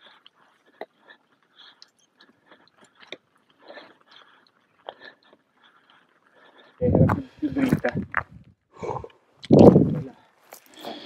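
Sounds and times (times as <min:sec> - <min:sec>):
crunching footsteps: 0:09.6 - 0:11.0.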